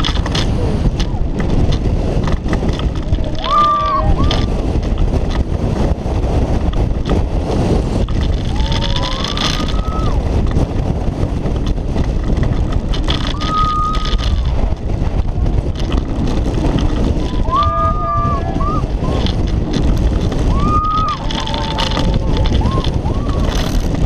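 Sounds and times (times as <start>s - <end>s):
wheels rumbling on steel track: 0.0s - 24.0s
wind rushing over camera: 0.0s - 24.0s
riders whooping: 2.5s - 4.9s, 8.0s - 10.7s, 13.0s - 24.0s.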